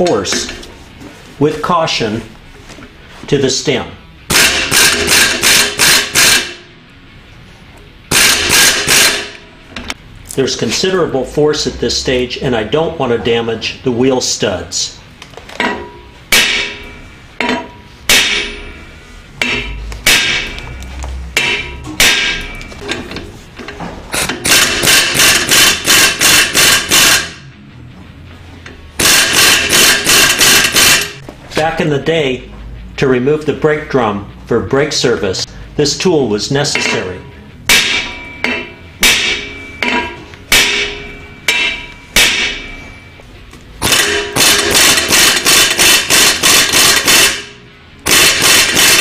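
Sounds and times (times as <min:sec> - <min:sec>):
hammer striking metal: 0:04.3 - 0:06.8, 0:08.1 - 0:09.9, 0:15.6 - 0:27.6, 0:28.6 - 0:31.2, 0:36.7 - 0:49.0.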